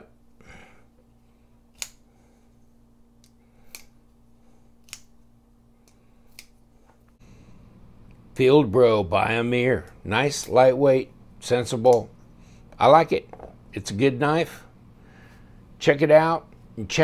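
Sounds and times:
folding knife clicking: 0:01.7 - 0:02.0, 0:03.2 - 0:04.0, 0:04.8 - 0:05.1, 0:05.8 - 0:06.6.

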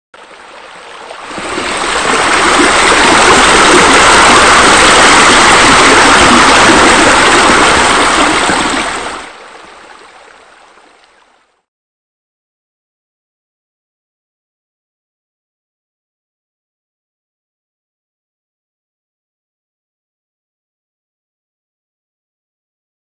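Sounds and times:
water running and splashing: 0:00.2 - 0:11.4.

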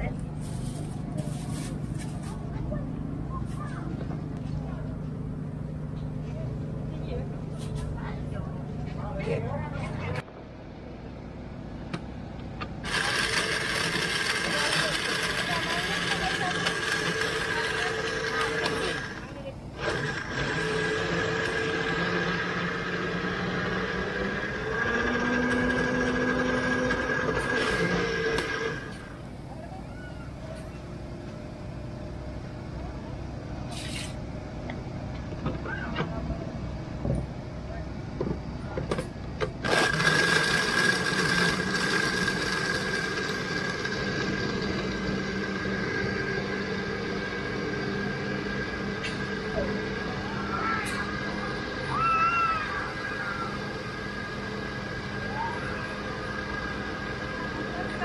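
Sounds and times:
noisy background: 0:00.0 - 0:58.0
steady engine hum: 0:00.0 - 0:58.0
small motor whining: 0:12.8 - 0:29.3, 0:39.5 - 0:58.0.

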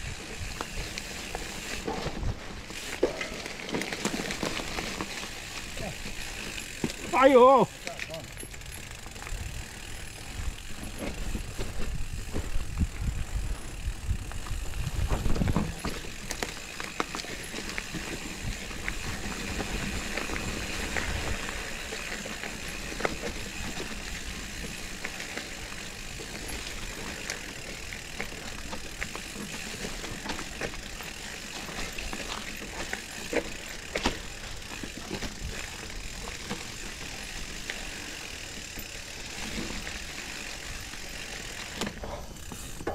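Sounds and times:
bike rattling over bumps: 0:00.0 - 0:42.9
bike tyres rolling over leaves: 0:00.0 - 0:42.9.

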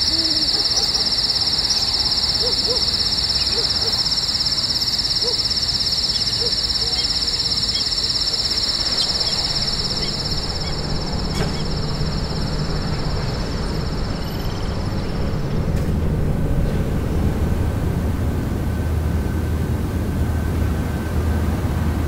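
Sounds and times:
low rumble: 0:08.6 - 0:21.3.

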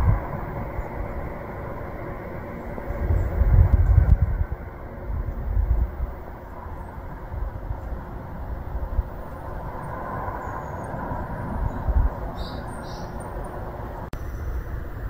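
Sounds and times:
steady hum with low rumbling: 0:00.0 - 0:15.0
bird chirps: 0:11.6 - 0:13.5.

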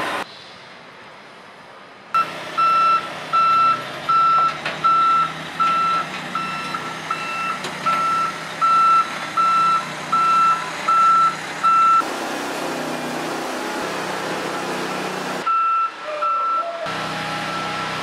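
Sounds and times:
truck reversing alarm beeping: 0:02.2 - 0:12.0, 0:15.4 - 0:18.0
truck engine running low: 0:02.2 - 0:16.0, 0:16.8 - 0:18.0.

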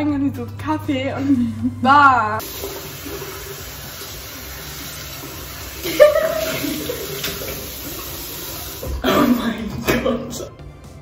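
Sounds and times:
water running from tap: 0:02.4 - 0:09.2.

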